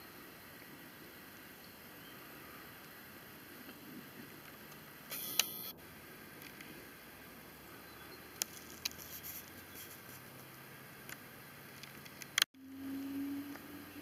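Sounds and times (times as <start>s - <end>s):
faint outdoor hiss: 0.0s - 14.0s
low steady hum: 0.0s - 14.0s
small clicks: 11.1s - 12.5s.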